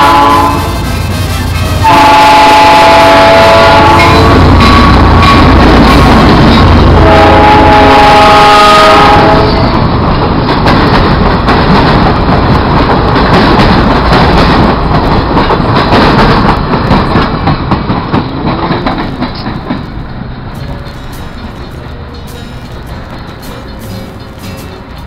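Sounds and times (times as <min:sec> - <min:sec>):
train wheels rumbling on rails: 0:00.0 - 0:25.0
wheels clicking over rail joints: 0:09.3 - 0:25.0.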